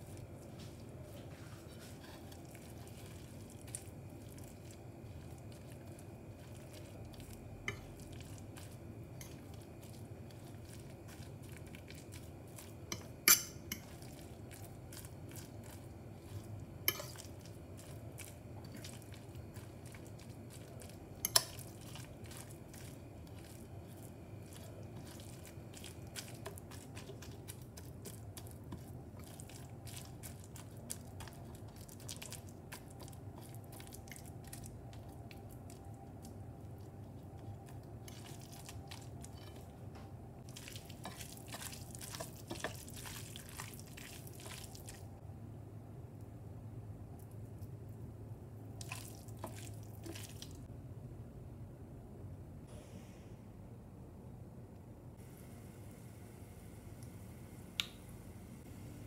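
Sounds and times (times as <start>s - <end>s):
fork mashing wet mixture: 0.0s - 39.8s, 40.4s - 45.1s, 48.8s - 50.6s.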